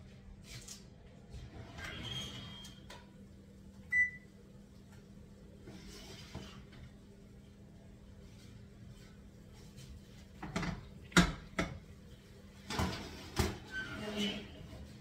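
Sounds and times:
faint steady hum: 0:02.6 - 0:13.6.

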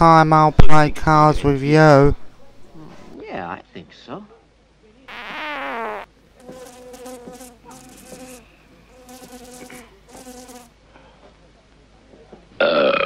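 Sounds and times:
comic buzzing sound effect: 0:05.1 - 0:06.1.

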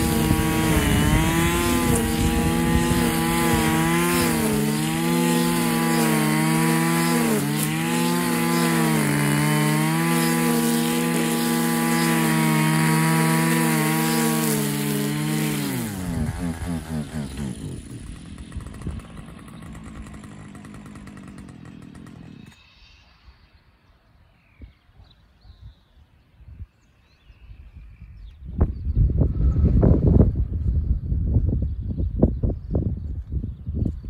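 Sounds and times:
brushcutter engine cutting grass: 0:00.0 - 0:22.8.

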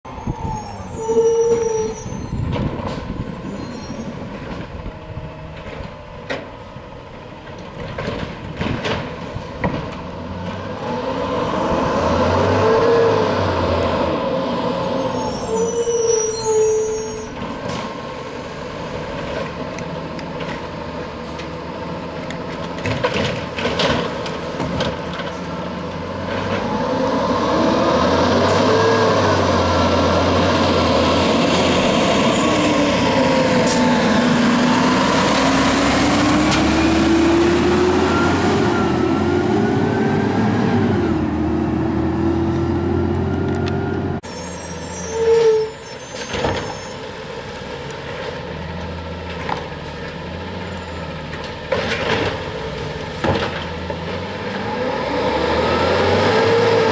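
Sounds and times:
metal clanks and knocks: 0:07.4 - 0:10.0
diesel truck engine revving: 0:08.8 - 0:45.2, 0:46.2 - 0:56.9.

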